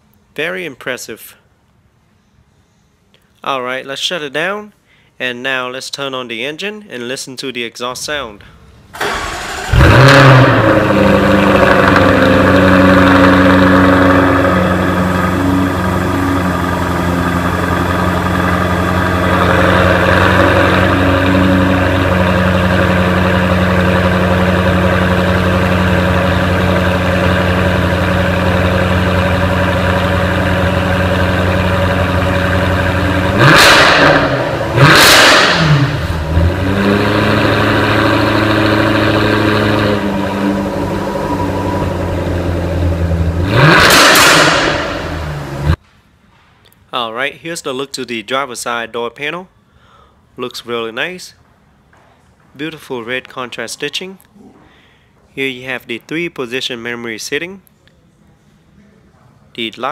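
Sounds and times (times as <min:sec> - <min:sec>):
car exhaust idling: 0:09.0 - 0:45.8
engine throttle blips: 0:09.0 - 0:45.8.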